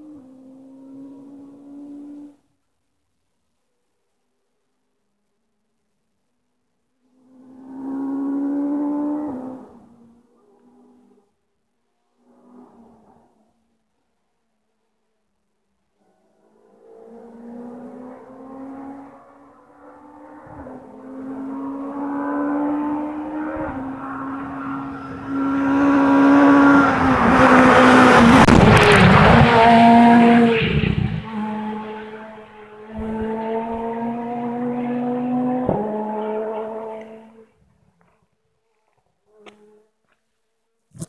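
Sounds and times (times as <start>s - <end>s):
rally car engine at full throttle: 16.0s - 37.5s
tyre and road noise: 19.0s - 38.2s.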